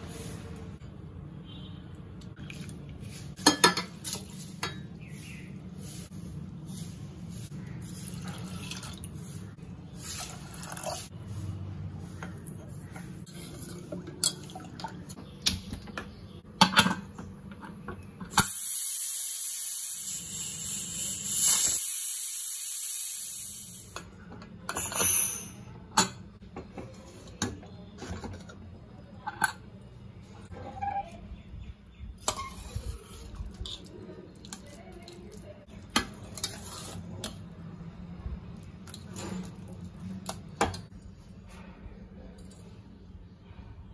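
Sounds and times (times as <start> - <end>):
water poured into pot: 8.0 - 9.2, 10.0 - 11.1
steam hissing from pressure cooker: 18.4 - 24.0.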